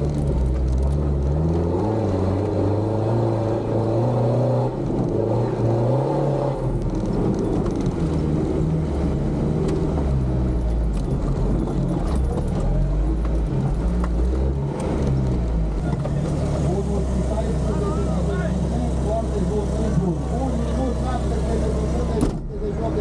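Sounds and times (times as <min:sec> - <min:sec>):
car engine revving: 0:00.0 - 0:23.0
vehicle knocks and rattles: 0:06.7 - 0:08.4, 0:09.0 - 0:14.2.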